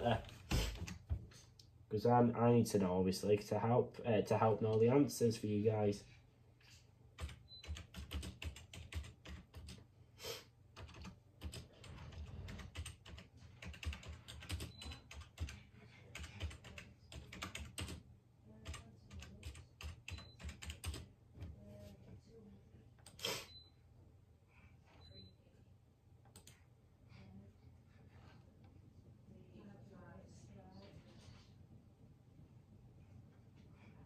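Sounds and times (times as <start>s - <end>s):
computer keyboard typing: 7.2s - 9.8s, 10.7s - 18.0s, 18.6s - 21.1s.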